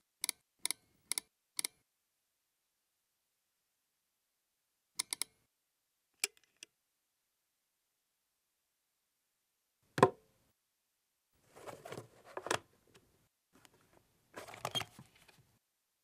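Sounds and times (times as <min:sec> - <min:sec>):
rustling and clattering of papers: 0:11.4 - 0:12.6, 0:13.6 - 0:15.5.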